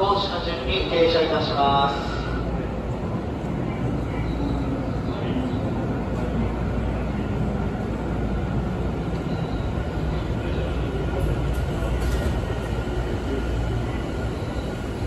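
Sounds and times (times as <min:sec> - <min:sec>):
train wheels rumbling: 0:00.0 - 0:15.0.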